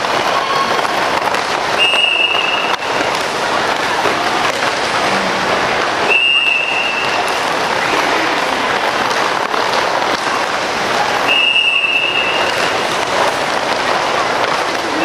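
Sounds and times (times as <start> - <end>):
roller skates rolling on court: 0.0 - 15.0
long whistle blast: 6.1 - 7.2, 11.3 - 12.4.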